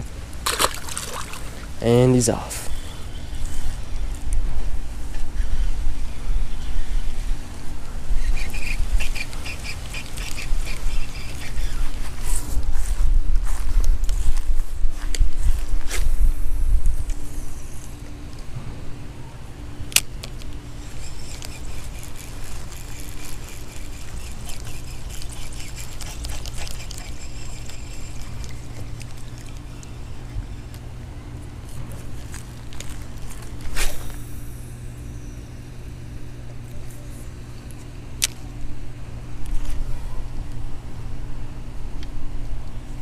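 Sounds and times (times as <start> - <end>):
steady low hum: 0.0 - 43.0
fishing reel gears whirring: 1.4 - 4.3, 5.3 - 12.3, 20.3 - 31.0.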